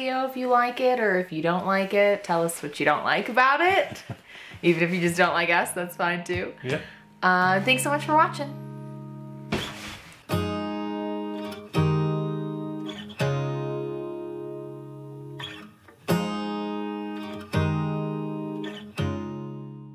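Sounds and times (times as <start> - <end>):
acoustic guitar strumming chords: 5.6 - 19.9.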